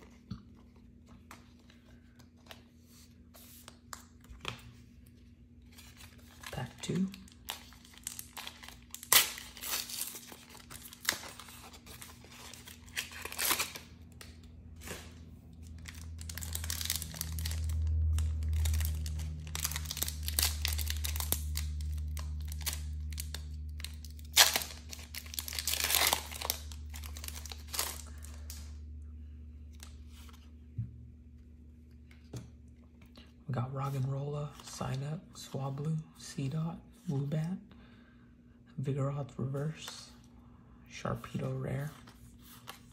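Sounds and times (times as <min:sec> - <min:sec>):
low steady hum: 0:00.0 - 0:42.9
foil wrapper crinkling and tearing: 0:05.7 - 0:28.7.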